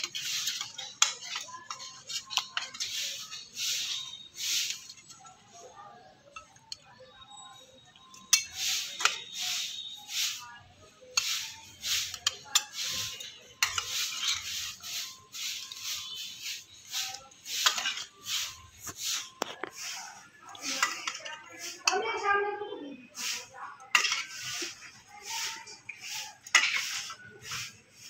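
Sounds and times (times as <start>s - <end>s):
spatula clinking on a plate: 0.0s - 5.2s, 6.3s - 6.8s, 8.0s - 9.4s, 11.1s - 16.3s, 16.9s - 22.0s, 23.8s - 24.9s, 25.8s - 27.2s
spatula scraping a pan: 0.0s - 5.5s, 8.0s - 22.3s, 23.1s - 28.0s.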